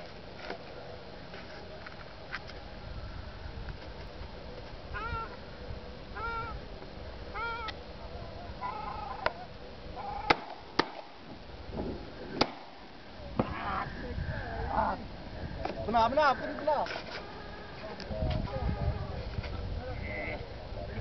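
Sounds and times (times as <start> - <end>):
waterfowl honking: 5.0 - 5.4, 6.2 - 6.6, 7.4 - 7.8, 8.6 - 10.4
shotgun shots: 10.3 - 11.2, 11.8 - 12.8.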